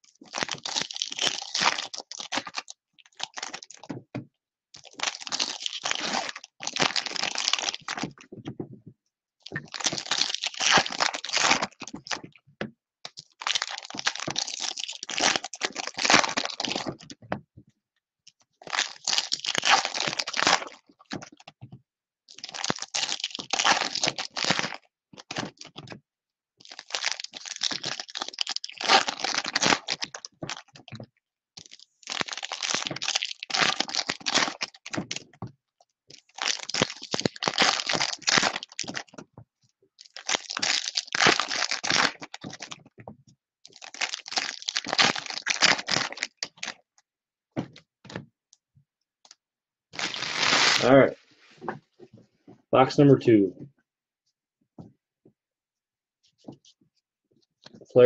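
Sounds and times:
plastic wrappers tearing and crinkling: 0:00.1 - 0:03.9, 0:04.8 - 0:08.3, 0:09.5 - 0:12.2, 0:13.1 - 0:17.2, 0:18.6 - 0:21.5, 0:22.3 - 0:26.0, 0:26.6 - 0:31.0, 0:31.6 - 0:35.4, 0:36.1 - 0:39.2, 0:40.0 - 0:42.9, 0:43.7 - 0:46.8, 0:50.0 - 0:51.0.

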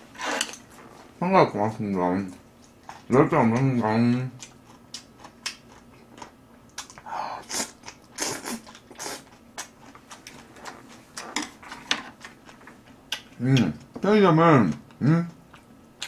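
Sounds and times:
slurping noodles: 0:07.5 - 0:09.3.

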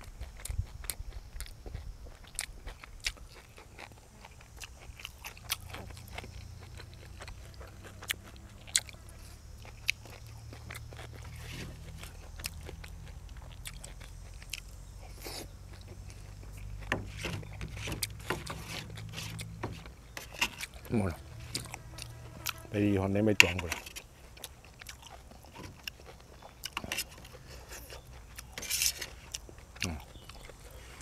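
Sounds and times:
chewing and crunching food: 0:00.0 - 0:31.0.

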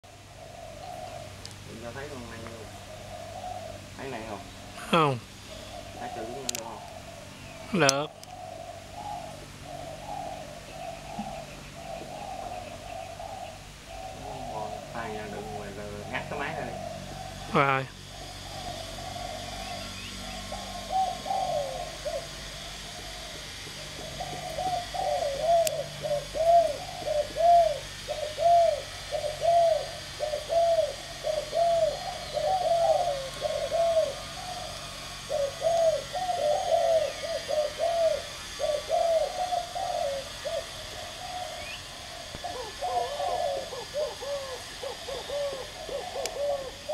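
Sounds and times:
dove cooing: 0:00.0 - 0:46.9.

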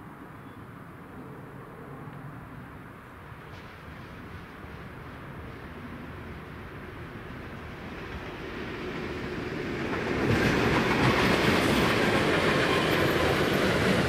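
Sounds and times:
wheels rushing on rails: 0:02.2 - 0:14.0
freight train rumbling: 0:03.0 - 0:14.0.

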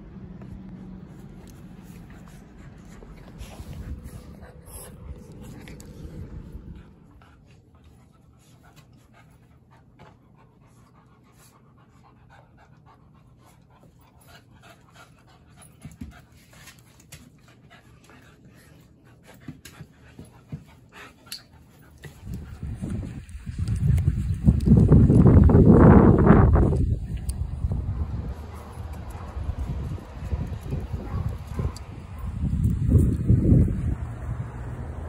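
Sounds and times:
puppies panting: 0:00.6 - 0:34.0
wind on microphone: 0:22.1 - 0:34.6.

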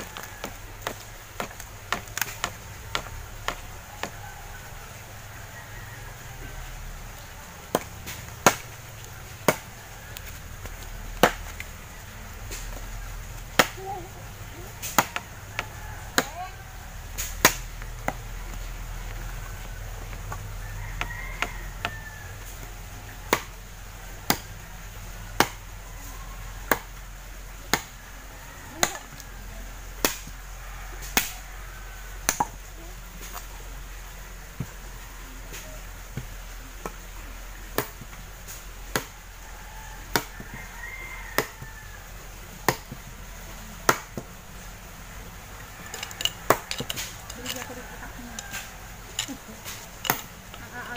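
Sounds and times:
machete chopping firewood: 0:00.0 - 0:04.2, 0:07.1 - 0:23.6, 0:24.2 - 0:24.6, 0:25.3 - 0:25.7, 0:26.6 - 0:27.0, 0:27.6 - 0:28.0, 0:28.7 - 0:29.3, 0:30.0 - 0:30.4, 0:31.0 - 0:31.4, 0:32.2 - 0:33.5, 0:35.5 - 0:39.2, 0:40.1 - 0:40.6, 0:41.3 - 0:41.7, 0:42.6 - 0:43.1, 0:43.8 - 0:44.4, 0:45.8 - 0:50.9.

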